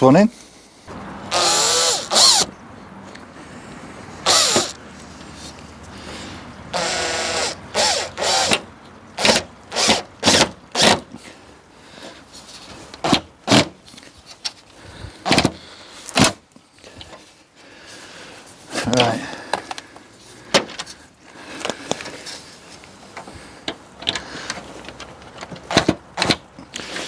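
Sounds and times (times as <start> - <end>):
power drill driving a screw: 1.3 - 2.5, 4.2 - 4.8, 6.7 - 11.0.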